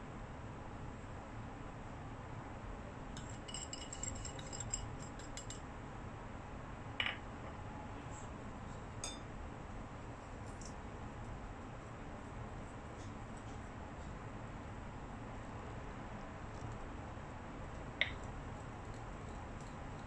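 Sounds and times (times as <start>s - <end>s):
wire whisk clinking in bowl: 3.2s - 5.6s, 9.0s - 9.2s.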